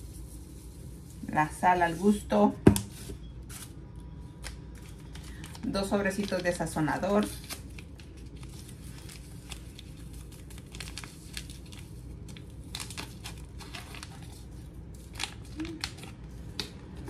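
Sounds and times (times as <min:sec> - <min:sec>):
low room hum: 0:00.0 - 0:17.0
packets crinkling and rustling: 0:04.4 - 0:17.0.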